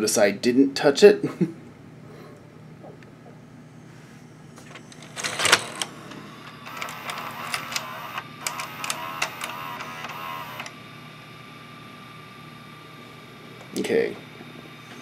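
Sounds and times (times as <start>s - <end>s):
faint steady hum: 0.0s - 15.0s
motor whirring with gear clicks: 4.7s - 10.8s.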